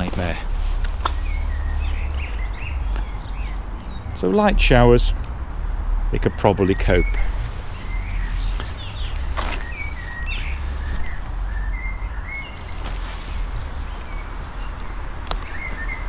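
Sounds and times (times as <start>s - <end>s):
small birds chirping: 0.0s - 16.0s
steady low rumble: 0.4s - 15.2s.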